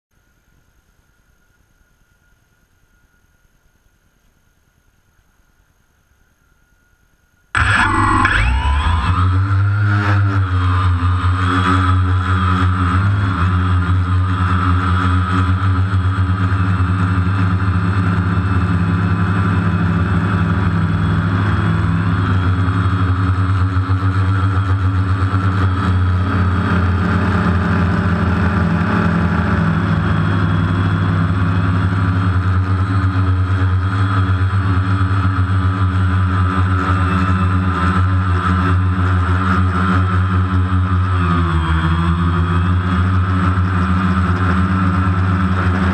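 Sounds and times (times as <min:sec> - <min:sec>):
drone propellers buzzing: 0:07.6 - 0:45.9.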